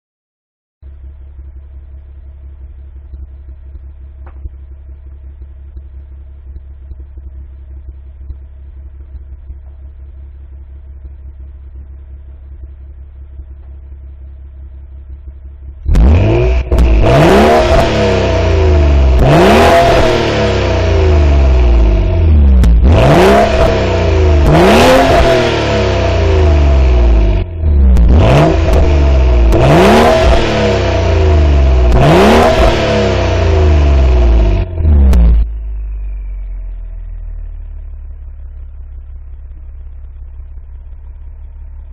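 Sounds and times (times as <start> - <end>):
car engine idling and revving: 0.8 - 41.9.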